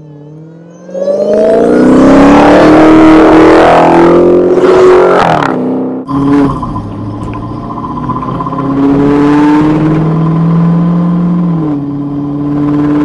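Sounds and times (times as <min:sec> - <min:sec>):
car engine accelerating hard: 0:00.0 - 0:13.0.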